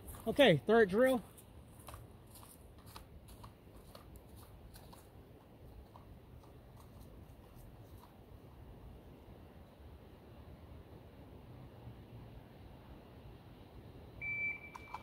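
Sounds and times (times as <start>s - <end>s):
footsteps crunching on dry leaves: 1.1s - 5.1s.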